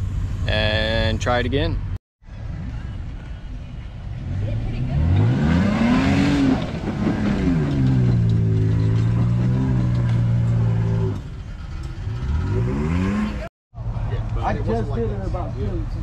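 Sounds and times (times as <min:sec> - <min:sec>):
truck engine revving: 0:04.0 - 0:13.5.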